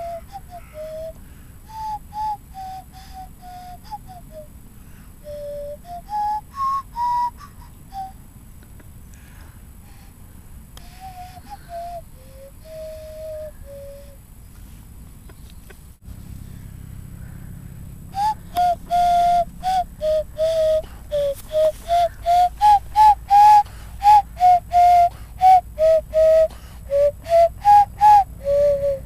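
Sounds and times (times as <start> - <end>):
nose flute playing a tune: 0.0 - 8.2, 10.8 - 14.2, 18.1 - 29.0.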